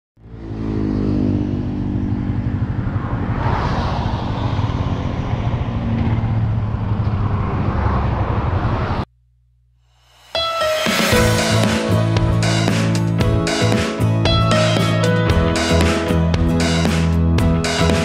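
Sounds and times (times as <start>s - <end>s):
wind and road noise: 0.2s - 9.1s.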